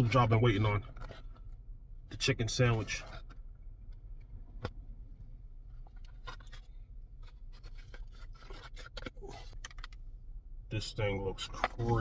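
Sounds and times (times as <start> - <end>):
low rumble inside car: 0.0 - 12.0
takeout container clicks and scrapes: 5.8 - 10.0.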